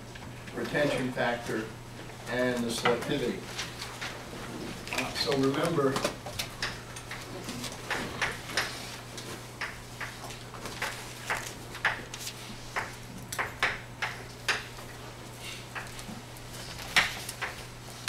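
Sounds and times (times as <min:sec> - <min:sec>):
chalk tapping and scraping on blackboard: 0:10.8 - 0:14.7.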